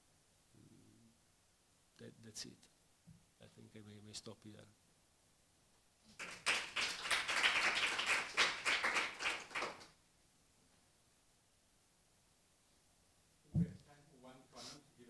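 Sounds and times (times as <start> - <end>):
audience applauding: 6.1 - 9.9.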